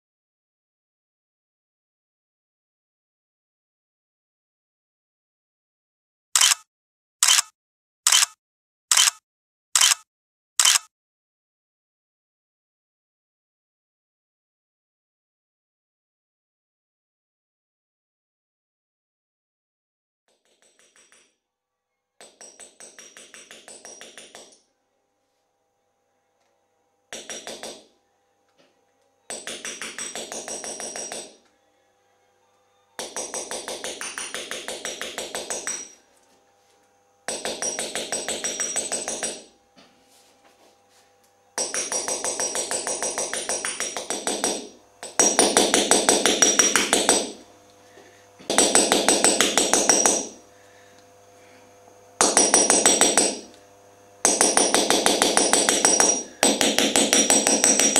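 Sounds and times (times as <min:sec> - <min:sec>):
hammer tapping punch on metal: 0:27.1 - 0:27.9, 0:29.3 - 0:31.4, 0:33.0 - 0:36.0, 0:37.3 - 0:39.5, 0:41.6 - 0:47.4, 0:48.4 - 0:50.4, 0:52.2 - 0:53.6, 0:54.2 - 0:57.9.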